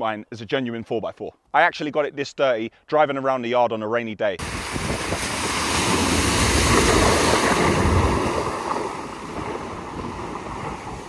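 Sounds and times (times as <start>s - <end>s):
tyres splashing through water: 4.4s - 11.0s.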